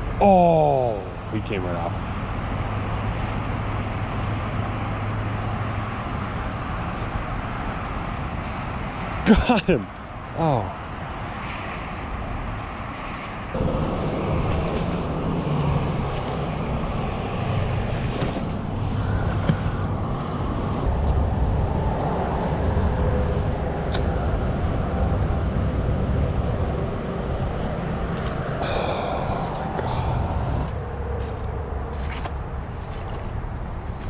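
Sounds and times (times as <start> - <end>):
wind buffeting microphone: 12.2 - 34.0.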